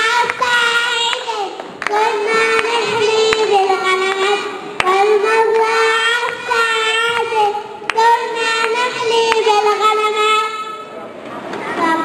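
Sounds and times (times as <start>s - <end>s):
children singing into microphone: 0.0s - 10.9s
hand claps: 0.2s - 6.5s, 7.1s - 9.5s.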